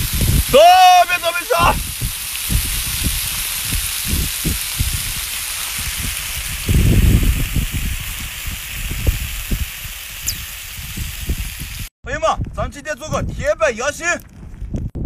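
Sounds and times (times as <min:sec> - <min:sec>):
meat sizzling on a griddle: 0:00.0 - 0:11.9.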